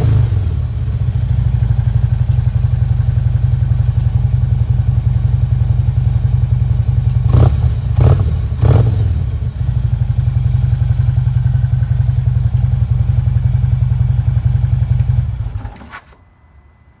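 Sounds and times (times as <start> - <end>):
motorcycle engine idling and revving: 0.0 - 15.6.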